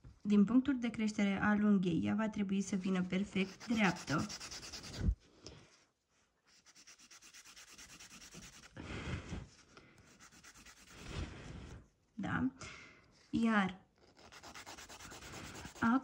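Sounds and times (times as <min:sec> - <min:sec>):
nail file rasping: 0:03.4 - 0:05.2, 0:06.6 - 0:08.8, 0:10.1 - 0:11.0, 0:14.0 - 0:15.9.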